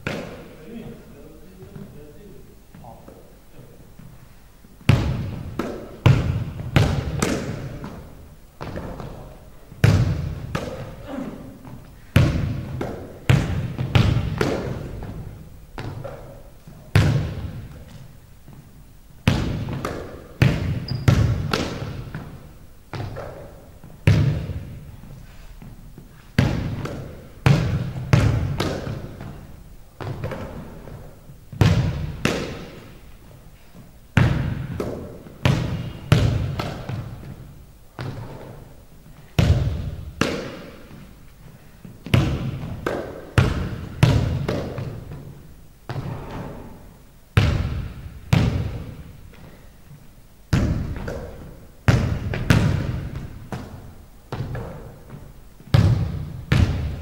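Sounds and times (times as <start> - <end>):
basketball bouncing on hardwood: 4.8 - 8.0, 9.8 - 11.0, 11.6 - 16.3, 16.9 - 17.8, 19.2 - 24.8, 26.4 - 29.4, 30.0 - 32.8, 34.2 - 37.4, 39.4 - 41.0, 42.0 - 46.4, 47.4 - 49.0, 50.5 - 57.0.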